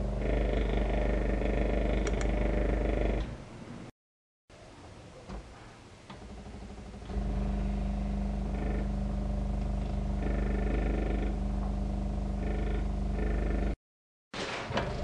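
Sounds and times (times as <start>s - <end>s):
high whine: 7.1s - 13.8s.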